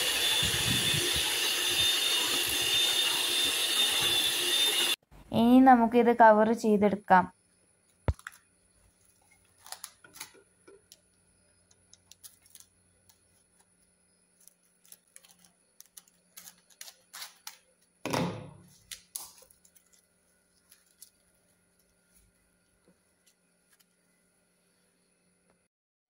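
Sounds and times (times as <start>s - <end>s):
cling film crackling and rustling: 8.1s - 11.0s, 12.0s - 17.6s.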